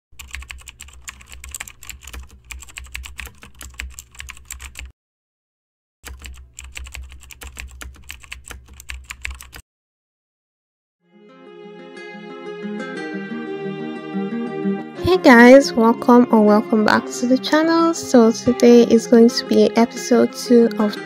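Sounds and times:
fast keyboard typing: 0.2s - 4.9s, 6.0s - 9.6s.

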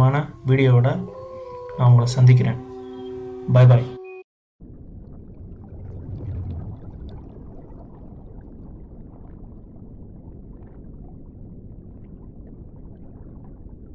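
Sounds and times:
underwater low wash: 4.6s - 13.9s
air bubbles popping: 4.7s - 13.9s.

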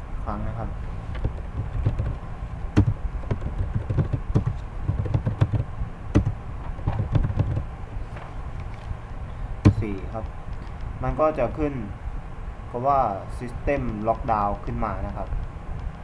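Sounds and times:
keyboard typing clicks: 1.2s - 2.2s, 2.8s - 7.6s.

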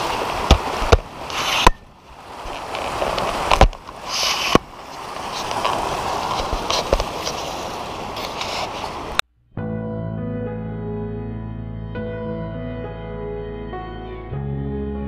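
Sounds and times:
water rushing and splashing: 0.0s - 9.2s.

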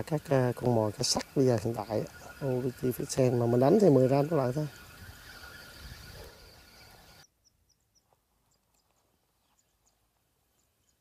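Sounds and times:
faint bird chirps: 0.0s - 11.0s
wind on microphone: 2.0s - 7.2s.

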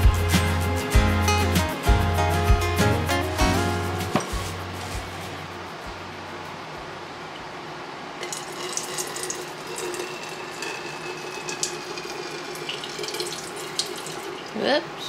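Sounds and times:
melted wax pouring: 8.2s - 14.5s.

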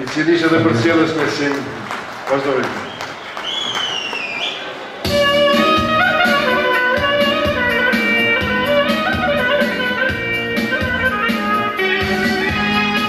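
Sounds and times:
folk dance music on keyboard: 5.0s - 13.0s.

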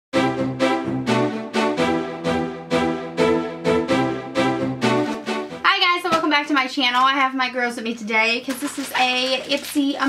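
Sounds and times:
intro music melody: 0.1s - 5.7s.

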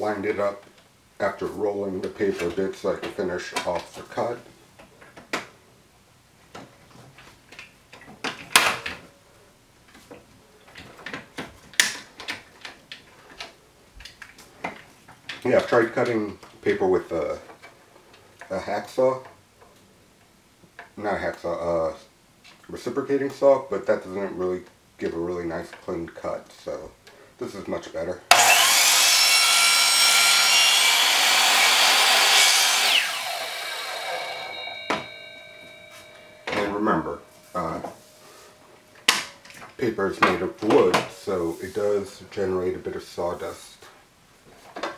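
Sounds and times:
motor winding down whine: 28.3s - 36.8s
miter saw cutting paper: 28.3s - 37.0s.

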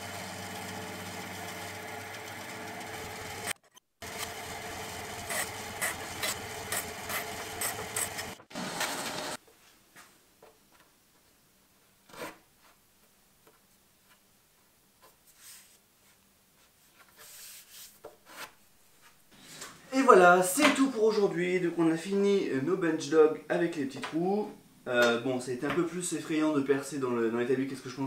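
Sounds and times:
bandsaw cutting wood: 0.0s - 9.4s.

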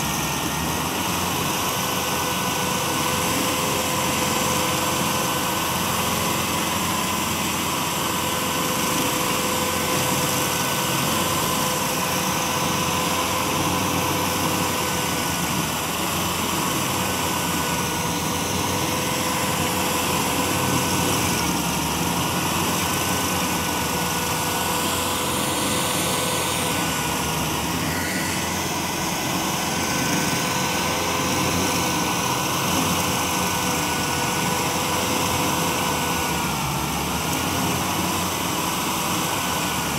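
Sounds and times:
engine drone: 0.0s - 39.9s
steady whine: 0.0s - 39.9s
stump grinder grinding: 0.0s - 39.9s.

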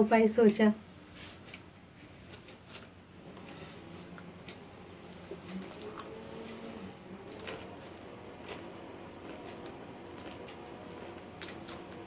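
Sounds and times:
popcorn crunching: 5.0s - 6.6s, 7.2s - 12.0s.

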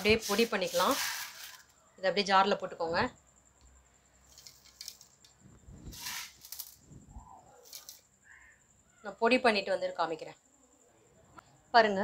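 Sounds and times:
grains rattling into steel jar: 0.0s - 1.7s, 5.9s - 6.8s.

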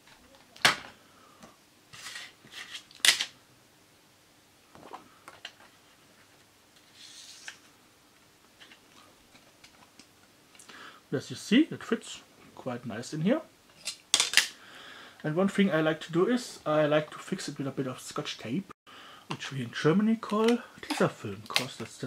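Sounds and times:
paper rustling and sliding: 1.9s - 2.9s, 5.6s - 7.8s.

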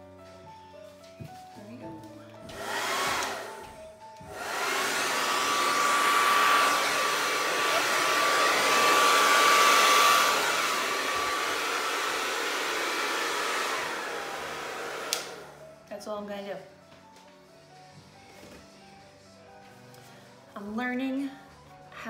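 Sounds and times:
hair dryer blowing with whine: 2.4s - 15.7s.

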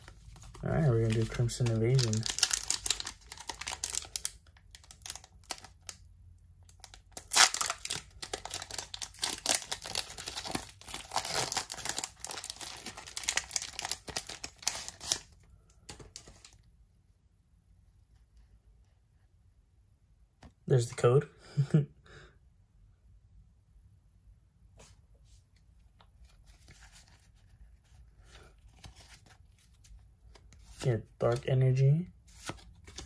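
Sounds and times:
faint handling of cards: 0.0s - 6.0s, 6.7s - 17.1s, 24.6s - 33.0s
foil wrapper crinkling: 0.3s - 6.0s, 6.7s - 15.3s.

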